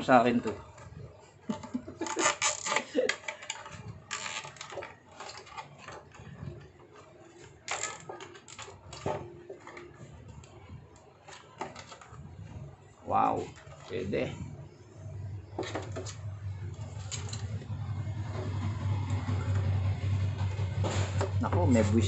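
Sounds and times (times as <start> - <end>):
plastic scraping scuffs: 20.7 - 22.0.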